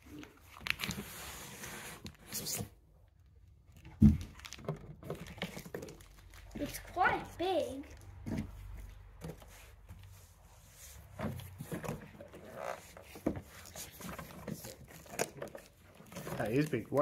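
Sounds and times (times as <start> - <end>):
rustling of cardboard box: 8.3 - 17.0.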